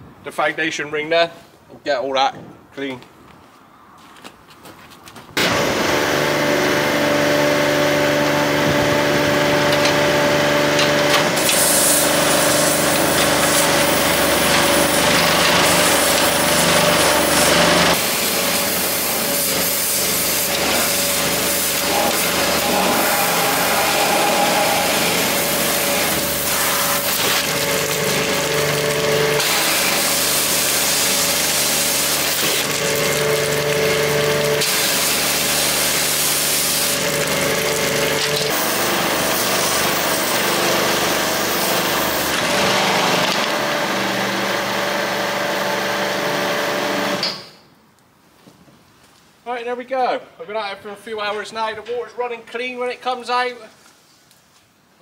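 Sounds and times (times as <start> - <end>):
pressure washer hum: 5.4 - 47.4
water jet spray hissing: 11.2 - 42.3
water splashing and pouring: 25.2 - 38.6.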